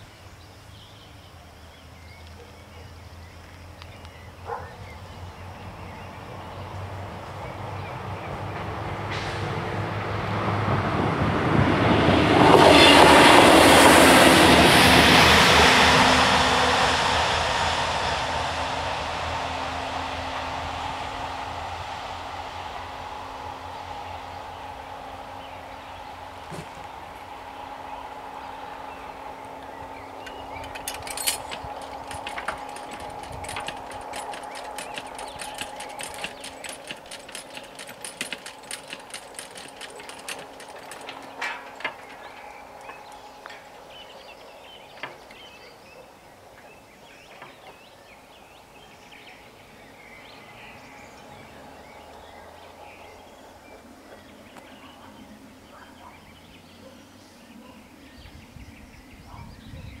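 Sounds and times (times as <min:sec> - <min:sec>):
faint birdsong: 0:00.0 - 0:09.7, 0:22.5 - 1:00.0
warning bell ringing rapidly: 0:30.3 - 0:42.4
barrier knocks: 0:30.3 - 0:43.2.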